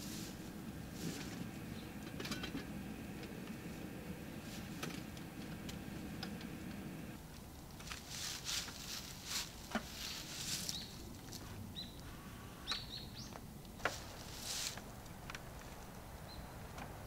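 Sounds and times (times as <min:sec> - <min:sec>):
small birds chirping: 0:01.2 - 0:02.2, 0:08.4 - 0:13.5, 0:16.2 - 0:16.7
soft rustling: 0:07.4 - 0:11.6, 0:13.8 - 0:16.0.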